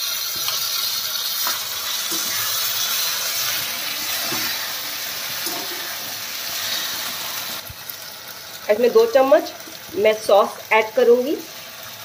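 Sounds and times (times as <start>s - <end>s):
vegetables sizzling in a pan: 0.0s - 12.0s
steel spatula stirring: 0.3s - 7.6s.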